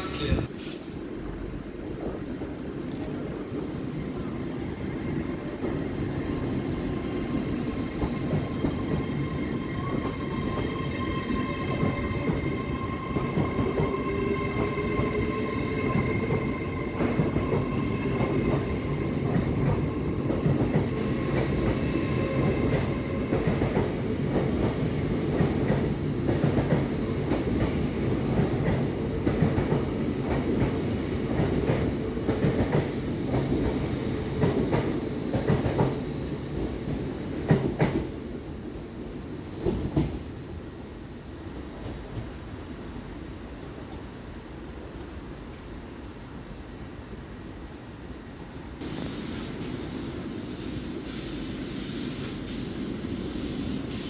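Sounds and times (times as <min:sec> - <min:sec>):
train rumble: 0:00.0 - 0:38.2.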